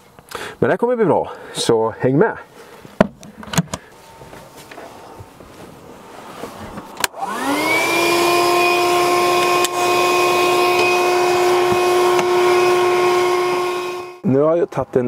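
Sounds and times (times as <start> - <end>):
vacuum cleaner motor whining: 7.0 - 14.2
vacuum cleaner switch click: 9.3 - 9.9, 10.6 - 12.4.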